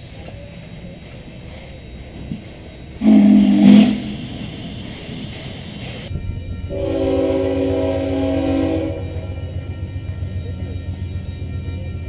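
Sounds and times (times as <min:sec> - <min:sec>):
steam whistle blast: 0:03.0 - 0:04.4, 0:06.7 - 0:09.4
locomotive air horn chord: 0:03.0 - 0:05.2, 0:06.7 - 0:09.5.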